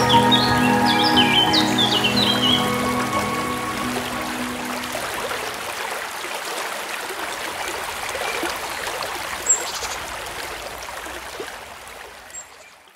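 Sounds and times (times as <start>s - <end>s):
high chirp: 0.0s - 5.4s
stream water trickling: 0.0s - 12.9s.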